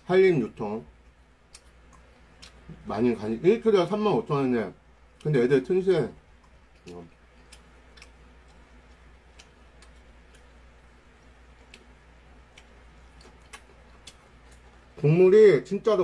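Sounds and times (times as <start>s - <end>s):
low steady hum: 0.0s - 16.0s
faint chewing clicks: 1.0s - 2.8s, 6.3s - 15.1s.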